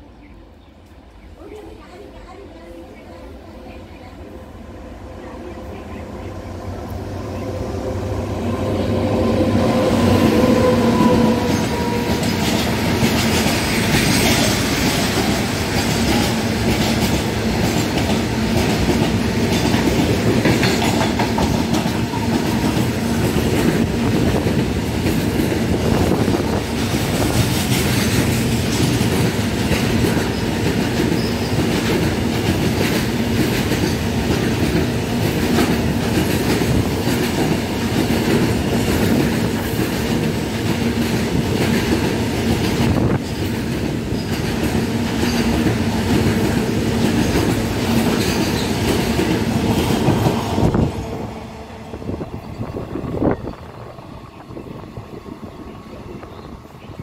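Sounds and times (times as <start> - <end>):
train wheels rumbling on rails: 0.8 - 57.0
electric locomotive whine: 2.2 - 57.0.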